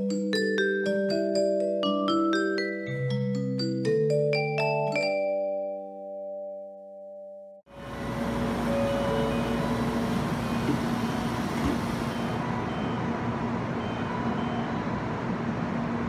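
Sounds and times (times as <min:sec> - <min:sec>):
steady low tone: 0:07.7 - 0:14.9
train hum and hiss: 0:07.7 - 0:16.0.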